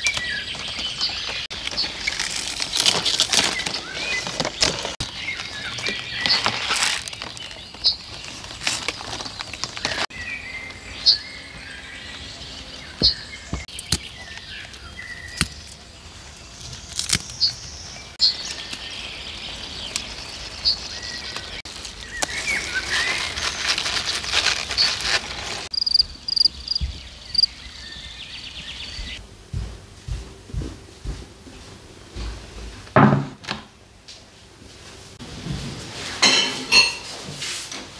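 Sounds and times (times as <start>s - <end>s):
small birds chirping: 0.0s - 29.2s
rustling: 0.1s - 10.1s, 18.3s - 26.8s.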